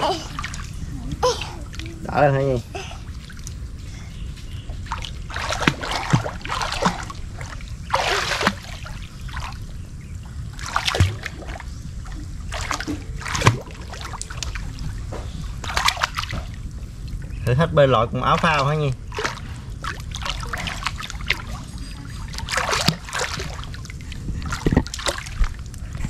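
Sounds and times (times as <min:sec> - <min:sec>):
river water splashing: 0:04.8 - 0:09.6, 0:10.5 - 0:11.7, 0:12.4 - 0:15.0, 0:15.6 - 0:16.6, 0:18.2 - 0:25.5.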